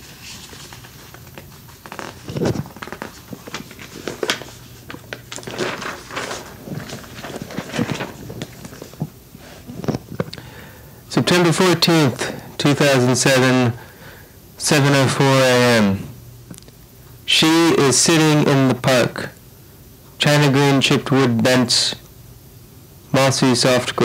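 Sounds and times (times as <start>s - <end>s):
faint low hum: 0.0s - 24.0s
tape hiss: 0.0s - 24.0s
microphone handling crackling: 0.7s - 10.4s.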